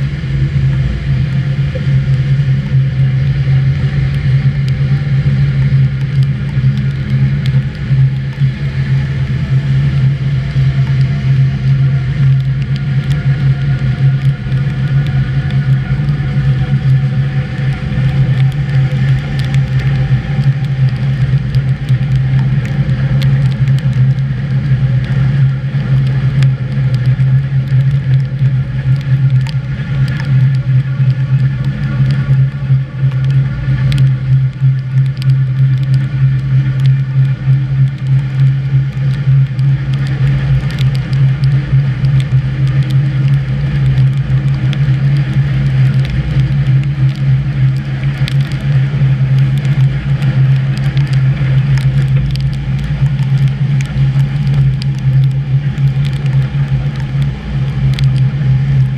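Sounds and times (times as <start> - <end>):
electric train hum: 0.0 - 57.3.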